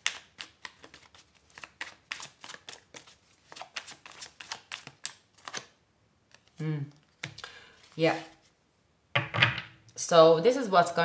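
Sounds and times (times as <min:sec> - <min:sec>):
cards being shuffled: 0:00.0 - 0:05.7, 0:06.3 - 0:08.5.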